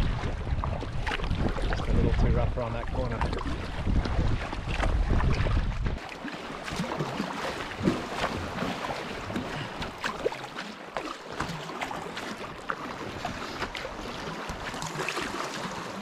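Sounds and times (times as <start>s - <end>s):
wind on microphone: 0.0s - 6.8s
water splashing against kayak hull: 0.0s - 16.0s.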